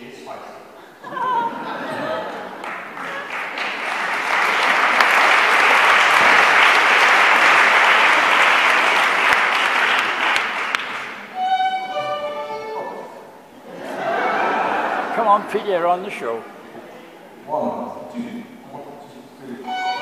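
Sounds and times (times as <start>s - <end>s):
audience applauding: 2.1s - 11.3s
fiddle-like held notes: 11.2s - 13.3s, 19.6s - 20.0s.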